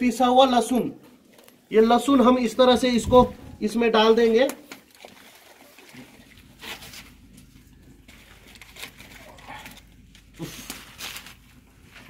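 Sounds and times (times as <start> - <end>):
plastic bag rustling: 6.4 - 12.0.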